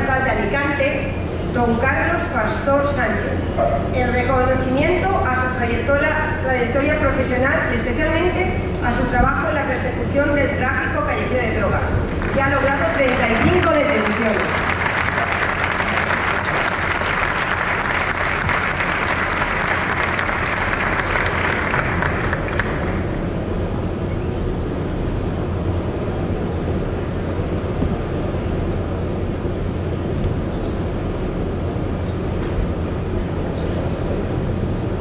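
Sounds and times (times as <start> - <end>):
large hall background noise: 0.0 - 35.0
steady low hum: 0.0 - 35.0
audience applauding: 12.1 - 23.1.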